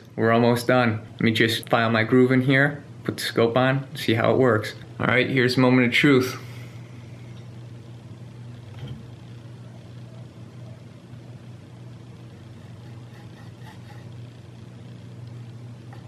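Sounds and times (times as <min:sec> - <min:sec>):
steady low hum: 0:00.0 - 0:16.0
hand file scraping metal: 0:12.6 - 0:14.1.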